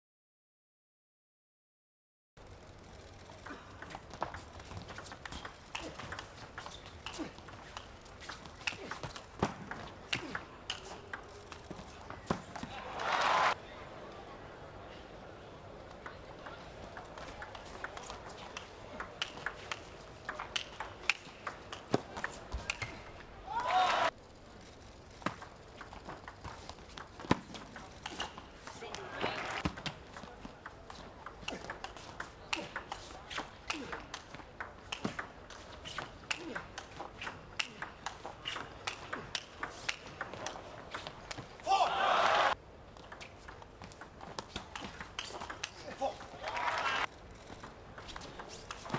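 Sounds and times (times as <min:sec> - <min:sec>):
ping pong ball clicking: 0:03.4 - 0:11.8, 0:15.9 - 0:23.2, 0:25.2 - 0:28.4, 0:29.6 - 0:41.4, 0:43.0 - 0:46.3.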